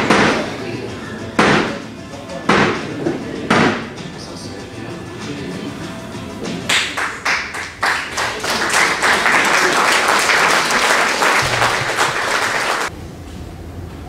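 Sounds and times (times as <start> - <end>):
audience applauding: 6.7 - 12.9.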